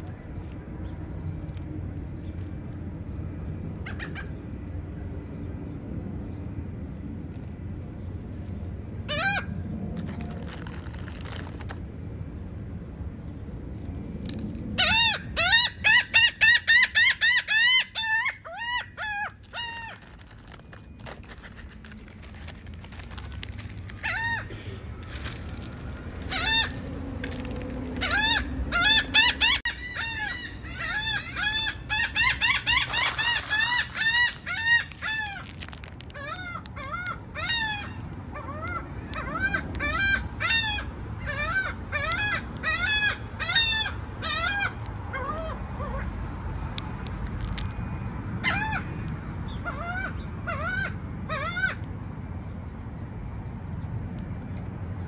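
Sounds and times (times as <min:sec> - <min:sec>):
low steady rumble: 0:00.0 - 0:55.0
gulls calling: 0:14.8 - 0:51.9.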